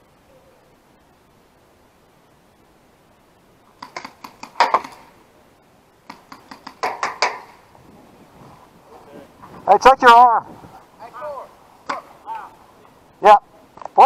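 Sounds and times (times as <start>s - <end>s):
paintball shots popping: 3.8s - 5.2s, 6.0s - 7.6s, 11.8s - 12.1s.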